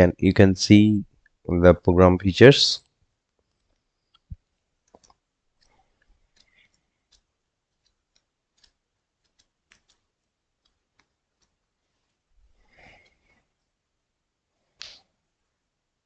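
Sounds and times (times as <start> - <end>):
faint clicks: 2.8 - 11.6.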